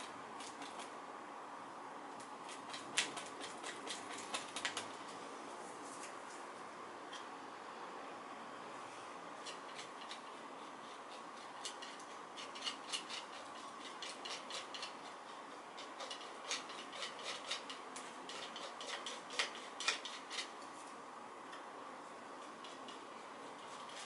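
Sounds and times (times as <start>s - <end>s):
faint room hum: 0.0s - 24.0s
palette knife scraping paint: 2.4s - 4.9s, 9.4s - 20.7s, 22.4s - 24.0s.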